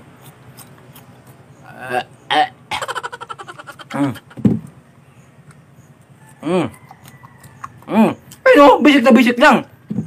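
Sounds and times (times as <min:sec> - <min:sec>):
man chewing crunchy beetles: 0:00.0 - 0:08.9
throaty grunts: 0:01.7 - 0:02.8, 0:03.8 - 0:04.4
rattling burp: 0:02.3 - 0:02.6.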